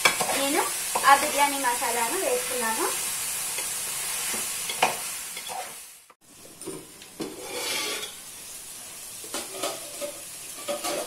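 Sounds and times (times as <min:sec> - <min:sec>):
food sizzling in a pot: 0:00.0 - 0:11.0
metal spatula scraping a pot: 0:04.7 - 0:05.8, 0:07.2 - 0:08.2, 0:09.3 - 0:11.0.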